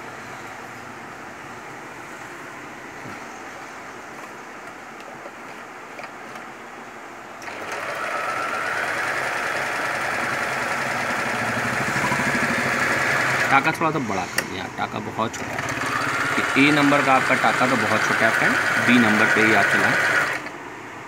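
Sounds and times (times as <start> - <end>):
electric sewing machine stitching: 7.4 - 13.7, 15.4 - 20.6.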